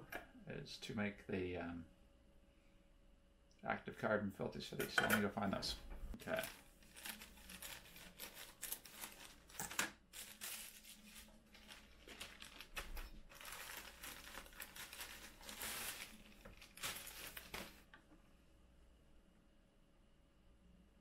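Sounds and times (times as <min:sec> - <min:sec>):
plastic bag crinkling: 0:06.2 - 0:17.9.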